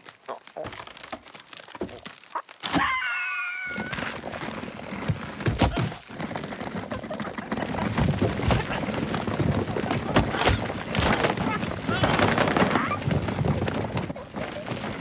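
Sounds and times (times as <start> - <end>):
tree branch cracking and crashing: 0.0 - 15.0
thuds and rumbling: 4.9 - 14.3.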